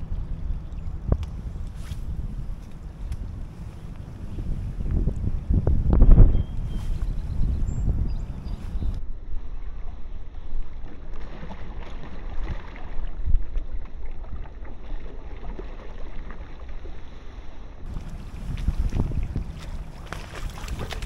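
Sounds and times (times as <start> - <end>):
wind rumbling on microphone: 0.0 - 11.2, 17.8 - 21.0
water lapping at kayak: 0.0 - 21.0.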